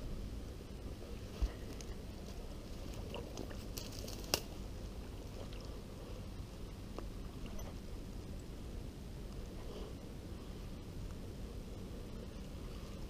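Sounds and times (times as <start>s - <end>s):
small crackles: 1.0s - 5.8s.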